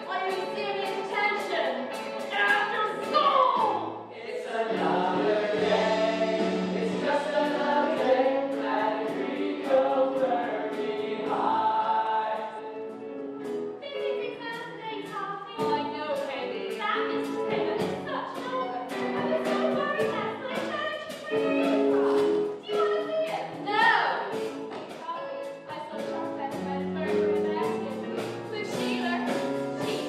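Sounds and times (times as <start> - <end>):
musical accompaniment with percussion: 0.0 - 30.0
ensemble singing together: 3.9 - 13.7.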